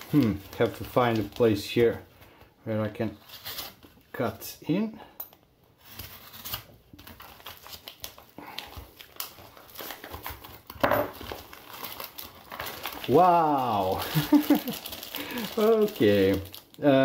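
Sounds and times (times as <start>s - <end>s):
paper crinkling and tearing: 0.0s - 4.3s, 5.8s - 17.0s.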